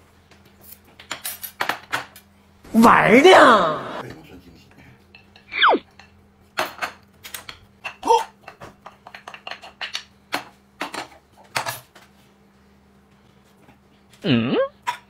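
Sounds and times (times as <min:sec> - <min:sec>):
brief pitched sound: 0:05.5 - 0:05.8.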